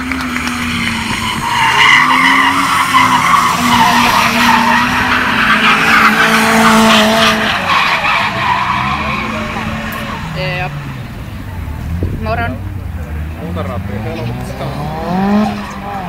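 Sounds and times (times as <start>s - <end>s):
tyres squealing: 0.6s - 16.0s
car engine at steady revs: 8.6s - 16.0s.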